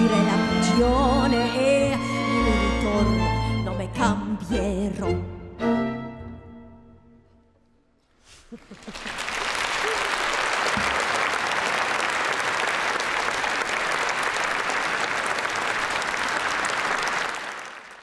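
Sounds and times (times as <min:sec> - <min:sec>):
audience applauding: 0:08.5 - 0:18.0.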